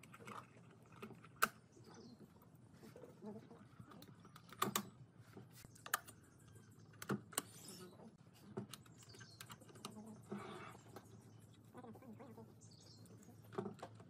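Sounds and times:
sharp clicks and light knocks: 0:03.9 - 0:07.6, 0:13.5 - 0:14.0.

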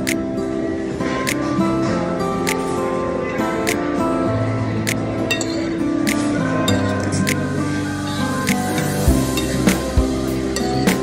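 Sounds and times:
sustained music chords: 0:03.6 - 0:11.0.

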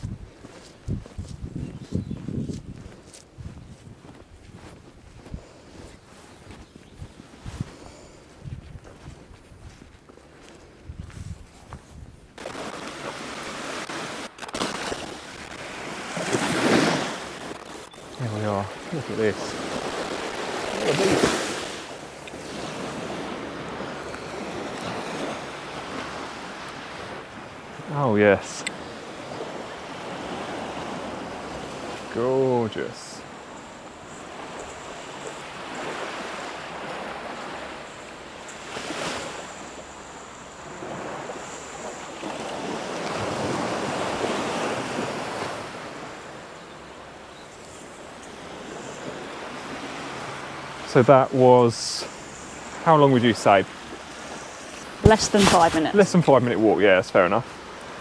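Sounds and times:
wind on microphone: 0:00.0 - 0:27.9
sea waves breaking on shore: 0:00.0 - 0:58.0.

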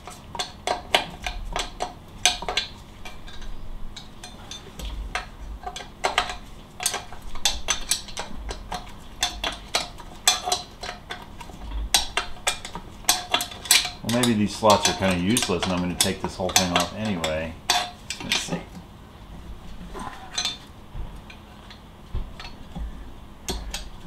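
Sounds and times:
hand tool clicking on bolts: 0:00.4 - 0:18.6, 0:23.5 - 0:24.0.

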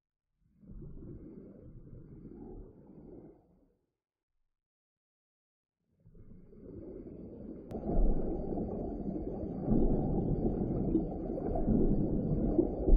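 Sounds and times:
muffled underwater water rumble: 0:00.4 - 0:03.7, 0:05.9 - 0:12.9.

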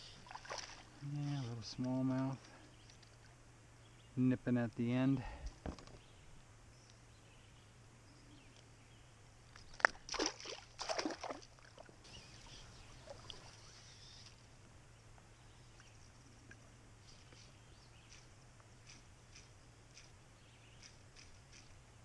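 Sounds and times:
fish slapping on water: 0:09.7 - 0:11.9
fish splashing in water: 0:09.8 - 0:11.9.

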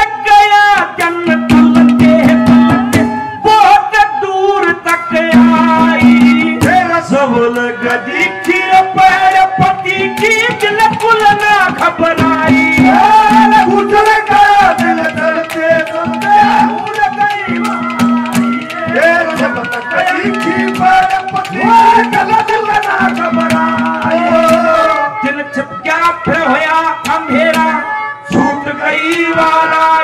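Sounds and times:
man singing into microphone: 0:00.0 - 0:30.0
hand drum strokes: 0:12.1 - 0:24.7.

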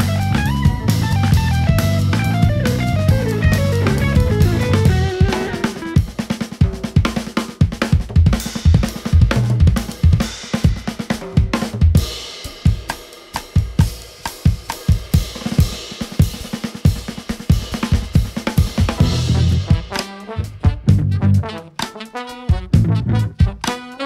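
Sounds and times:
drum kit playing: 0:00.0 - 0:24.0.

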